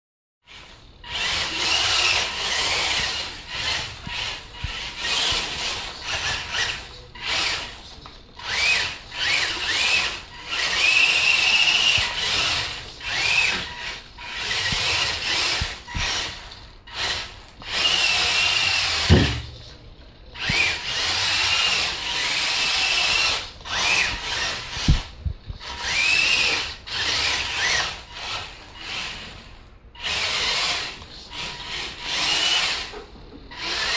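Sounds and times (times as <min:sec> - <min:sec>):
toy truck electric motor whining: 0:00.5 - 0:19.6, 0:20.4 - 0:33.9
sharp thumps: 0:19.0 - 0:19.7.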